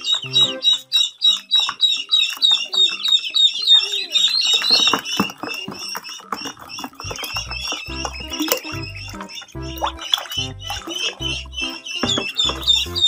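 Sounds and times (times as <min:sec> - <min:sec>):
ducklings peeping: 0:00.0 - 0:13.0
water splashes: 0:05.5 - 0:13.0.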